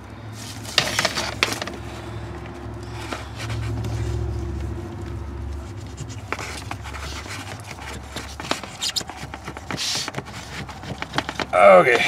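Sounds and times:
cable scraping and rubbing in hole: 0:00.4 - 0:02.2, 0:02.8 - 0:12.0
low hum: 0:01.6 - 0:07.0.

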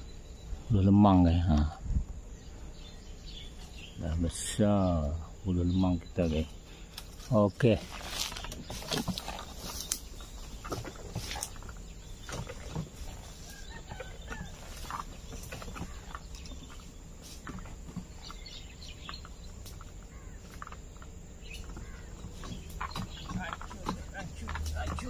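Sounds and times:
faint bird chirps: 0:00.0 - 0:25.0
footsteps through grass: 0:07.0 - 0:18.5.

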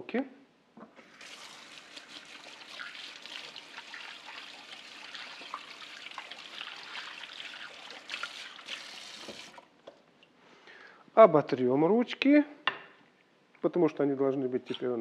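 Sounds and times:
tap running: 0:09.2 - 0:09.6
small water splashes: 0:14.6 - 0:15.0.

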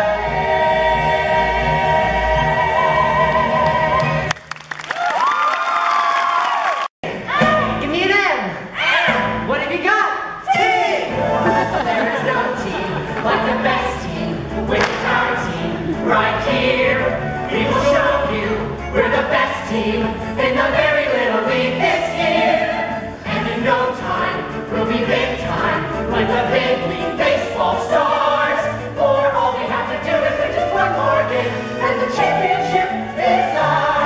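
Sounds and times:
group singing in chorus: 0:00.0 - 0:04.3, 0:11.1 - 0:34.0
musical accompaniment: 0:11.1 - 0:34.0.

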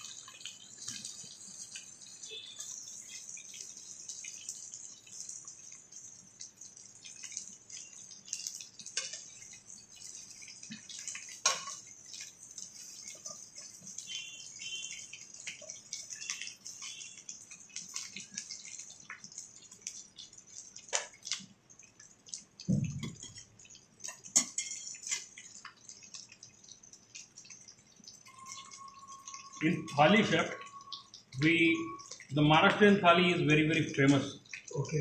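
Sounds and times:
vegetables sizzling in oil: 0:00.0 - 0:35.0
metal spoon clinking on pan: 0:08.3 - 0:14.0, 0:23.0 - 0:25.4.

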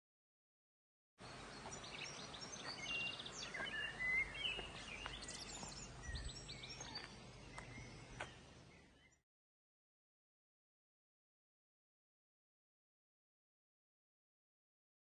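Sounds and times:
small birds chirping: 0:01.2 - 0:09.2.

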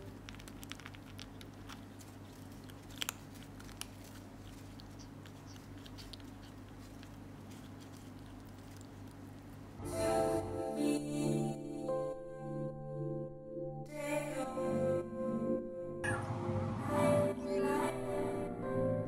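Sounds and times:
kitten crunching dry food: 0:00.0 - 0:09.8.

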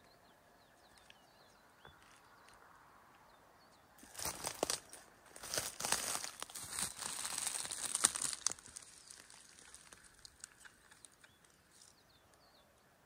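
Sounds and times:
crackling crunching rustle: 0:04.0 - 0:12.5.

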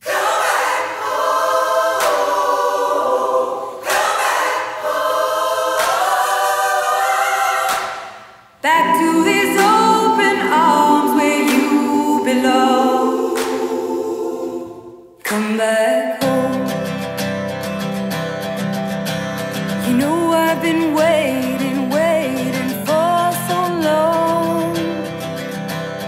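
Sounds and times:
choir-like vocal harmonies: 0:00.0 - 0:17.4, 0:19.6 - 0:25.7
sharp percussive hits: 0:07.7 - 0:14.1.

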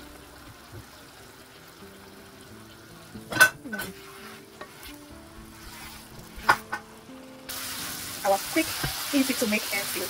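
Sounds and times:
stew sizzling in a pan: 0:00.0 - 0:10.0
utensil knocking against pan: 0:06.4 - 0:06.9.

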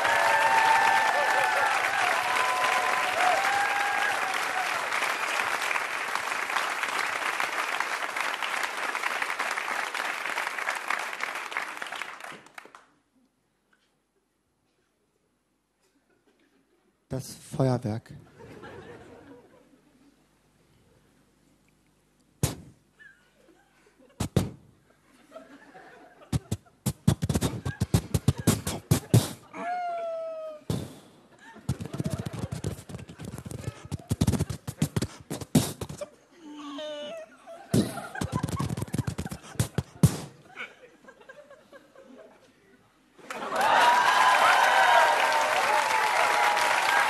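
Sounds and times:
audience applauding: 0:00.0 - 0:12.9, 0:43.2 - 0:47.0
person imitating fireworks vocally: 0:26.4 - 0:29.5, 0:33.9 - 0:36.1.

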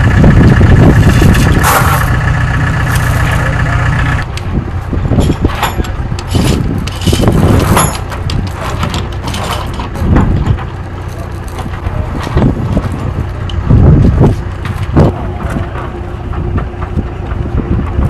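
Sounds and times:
steady low rumble: 0:00.0 - 0:18.0
steel chains rattling and clanking: 0:01.0 - 0:04.2, 0:05.1 - 0:13.0.

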